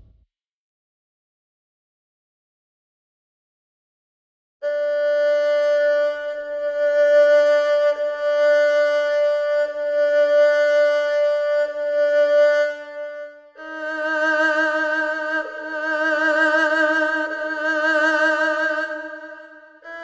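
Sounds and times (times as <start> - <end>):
erhu bowed note: 4.6 - 20.0.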